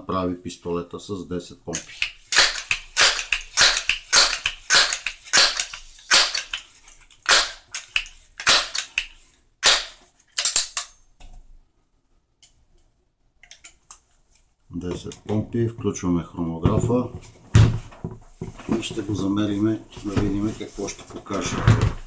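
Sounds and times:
air pistol pump strokes: 1.8s - 10.6s.

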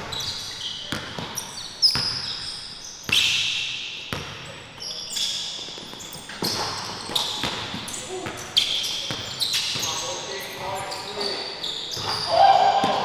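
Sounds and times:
basketball bouncing on court: 0.0s - 2.5s, 4.1s - 4.5s, 5.8s - 10.0s, 11.9s - 13.0s
sneakers squeaking: 0.0s - 13.0s.

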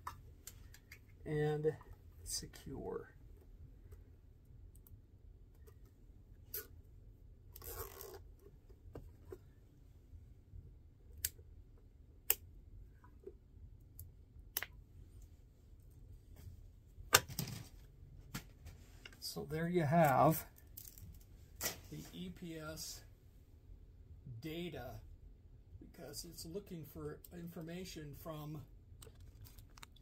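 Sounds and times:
cable tie ratcheting zip: 7.5s - 8.4s.

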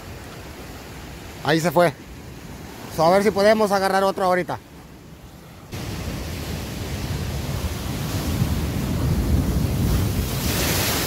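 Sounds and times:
surf washing against rocks: 5.7s - 11.0s
wave crashing over rocks: 5.7s - 11.0s.

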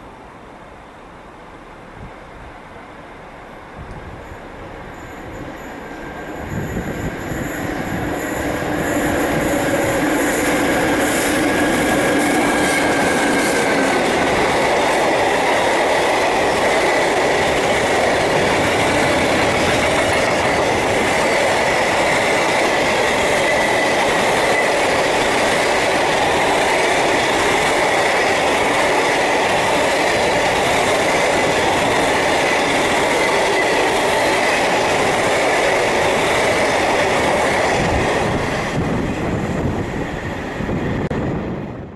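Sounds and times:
locomotive whine: 3.2s - 41.9s
high steady squeal: 4.2s - 14.9s.

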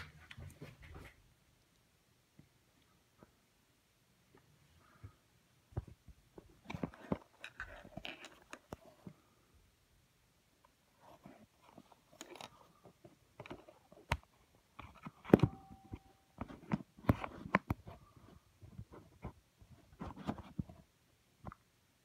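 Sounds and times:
phone handling clicks and rustles: 5.8s - 9.2s, 11.0s - 20.8s.

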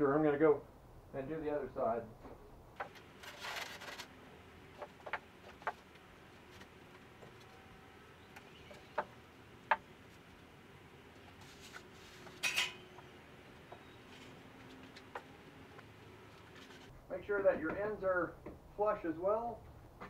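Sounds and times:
rustling scrape: 2.8s - 4.2s, 11.2s - 12.8s, 16.3s - 16.9s.

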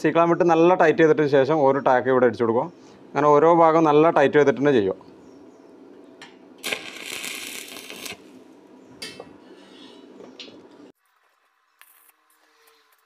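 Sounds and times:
rasping crackling noise: 6.6s - 8.4s.

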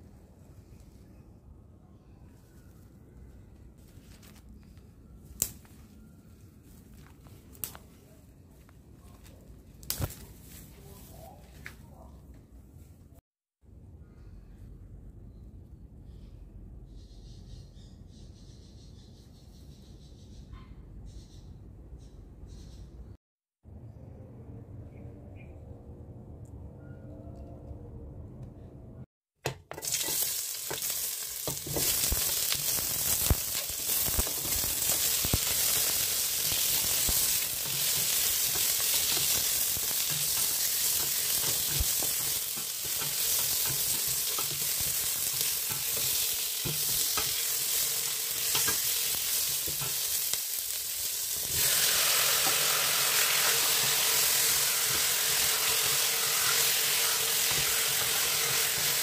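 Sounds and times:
onion and tomato sizzling in oil: 29.6s - 59.0s.

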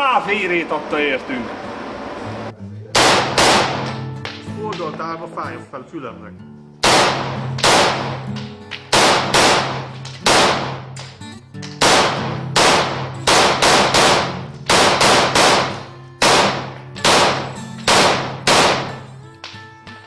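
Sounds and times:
rifle shots echoing indoors: 3.0s - 4.4s, 6.8s - 11.1s, 11.7s - 19.2s.

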